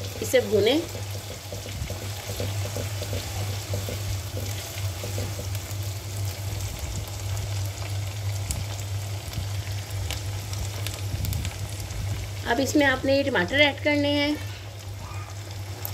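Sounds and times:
spatula stirring in wok: 0:00.0 - 0:06.7
onions sizzling in hot oil: 0:00.0 - 0:15.9.

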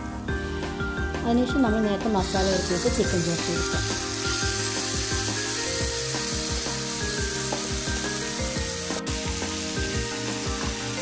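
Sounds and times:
background music with a beat: 0:00.0 - 0:01.3, 0:02.4 - 0:11.0
meat sizzling in a frying pan: 0:02.2 - 0:11.0.

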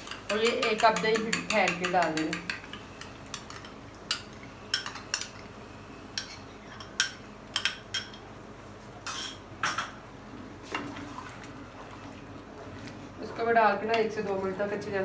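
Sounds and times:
utensils clinking against a wok: 0:09.0 - 0:09.9.

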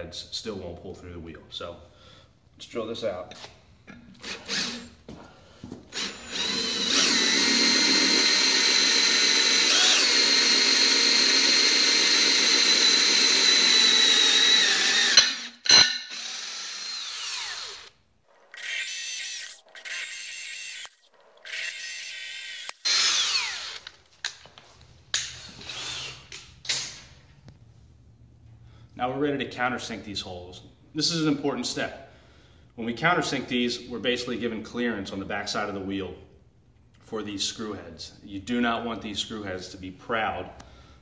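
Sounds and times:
cordless drill whining: 0:04.2 - 0:05.0, 0:05.9 - 0:24.0, 0:25.4 - 0:26.4.

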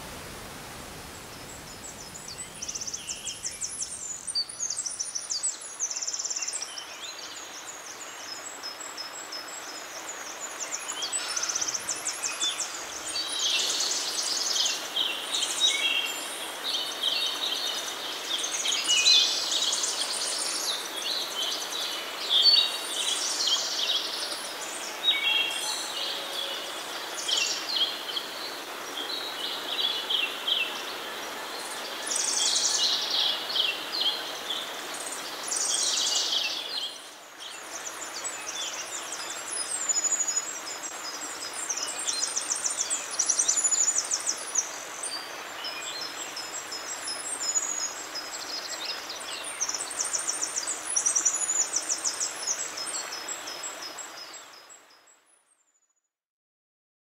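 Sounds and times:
waterfall: 0:00.0 - 0:55.4
birds singing: 0:01.1 - 0:07.6.

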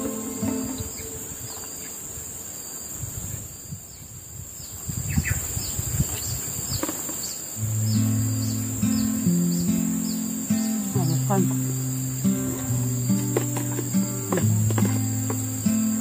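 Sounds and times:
forest insects droning: 0:00.0 - 0:16.0.

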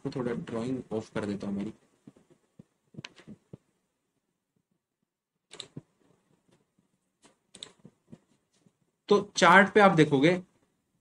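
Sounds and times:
computer mouse clicks: 0:05.5 - 0:05.9, 0:07.2 - 0:07.9.

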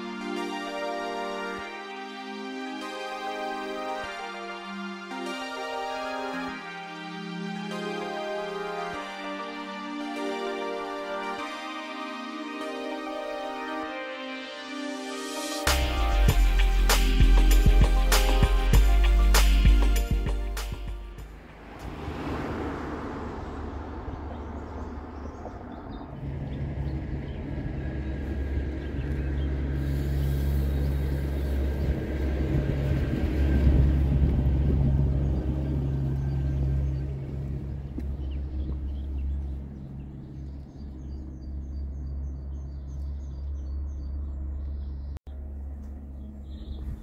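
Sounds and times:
birds chirping: 0:19.7 - 0:32.4, 0:34.5 - 0:47.0
vehicle passing: 0:21.0 - 0:47.0.

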